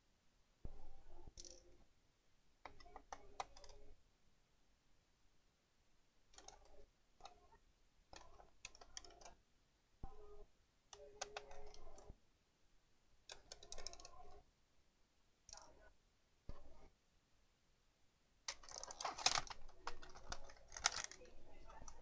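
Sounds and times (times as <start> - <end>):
screws and small parts clicking: 6.4 - 7.5, 18.5 - 21.3.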